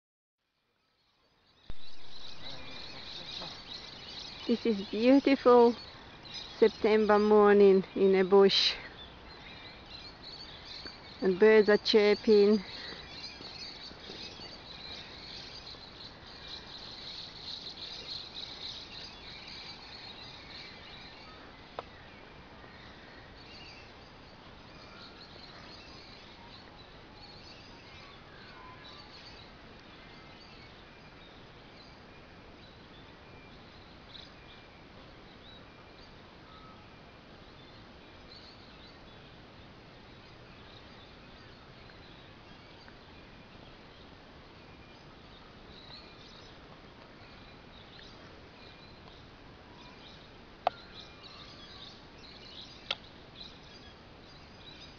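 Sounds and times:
birds chirping: 0:00.8 - 0:54.9.

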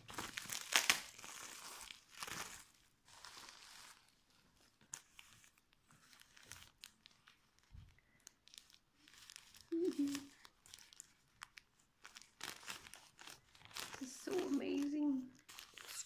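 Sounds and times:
bubble wrap crinkling: 0:00.0 - 0:16.0
tissue paper rustling: 0:00.0 - 0:16.0.

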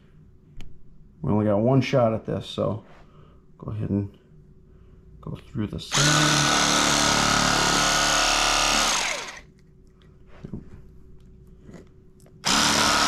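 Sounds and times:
electric fillet knife motor: 0:05.9 - 0:09.5, 0:12.4 - 0:13.0.

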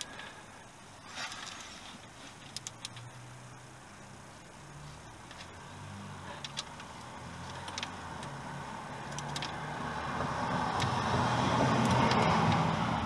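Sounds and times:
road vehicle passing: 0:02.9 - 0:13.0
wrench clicking on metal: 0:09.1 - 0:09.6.

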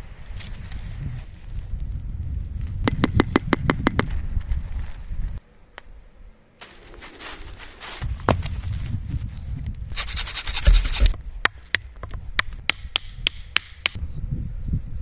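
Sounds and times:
footsteps crunching dry leaves: 0:06.6 - 0:09.3.

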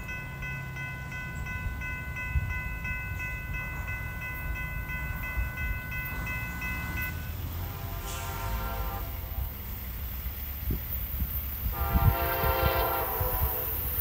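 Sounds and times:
railroad crossing bell ringing: 0:00.0 - 0:14.0
wind rumble on microphone: 0:01.1 - 0:07.1, 0:10.3 - 0:14.0.

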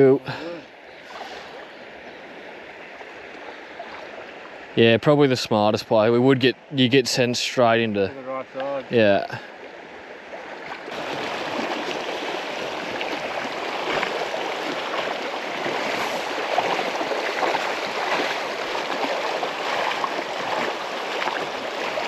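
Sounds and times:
river rushing over stones: 0:08.4 - 0:22.0.

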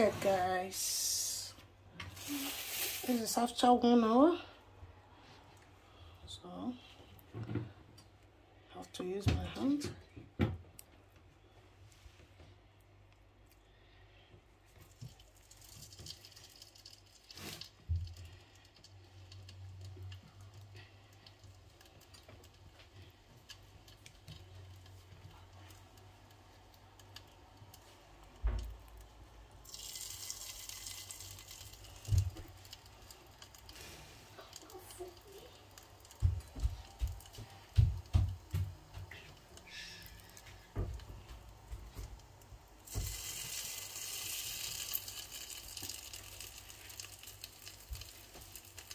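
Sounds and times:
oil sizzling: 0:00.0 - 0:04.1, 0:14.6 - 0:48.9.

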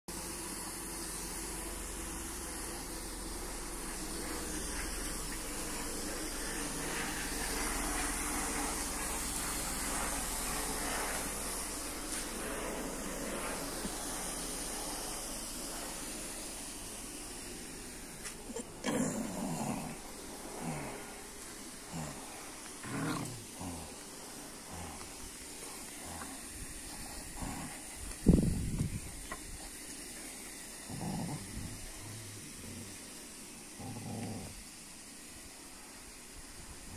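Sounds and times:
steady hissing noise: 0:00.1 - 0:36.9
dogs growling in play: 0:17.6 - 0:35.0.

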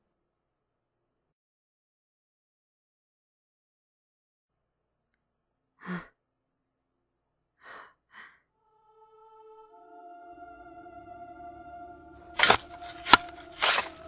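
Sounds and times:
person gasping: 0:07.6 - 0:08.4
quick breaths in and out: 0:07.6 - 0:08.5
music with held notes: 0:08.6 - 0:14.0.

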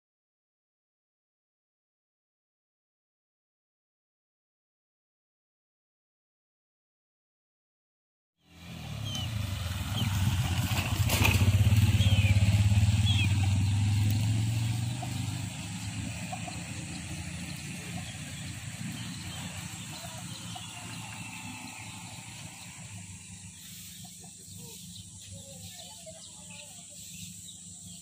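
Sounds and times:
motorcycle engine receding: 0:08.4 - 0:28.0
small birds chirping: 0:08.4 - 0:28.0.

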